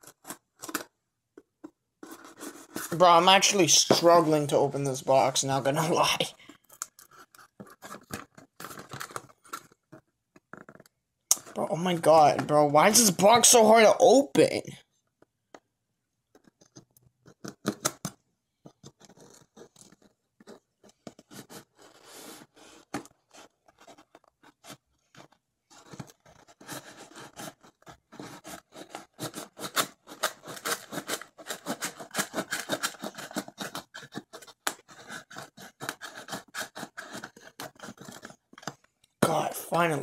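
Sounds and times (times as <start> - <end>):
knife scraping through tape: 25.8 - 38.4.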